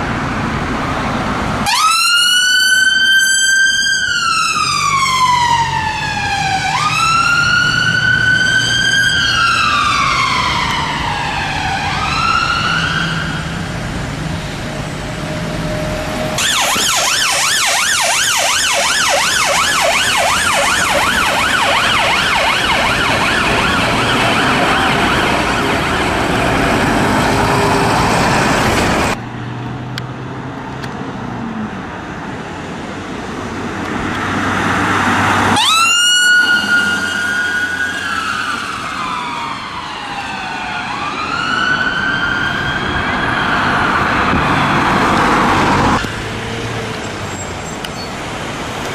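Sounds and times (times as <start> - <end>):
traffic rumble: 0.0 - 48.9
siren yelping: 1.6 - 13.7, 15.5 - 26.9, 35.4 - 46.0
siren wailing: 1.6 - 13.8, 14.6 - 29.2, 35.3 - 46.1
loud rushing noise: 13.3 - 29.2.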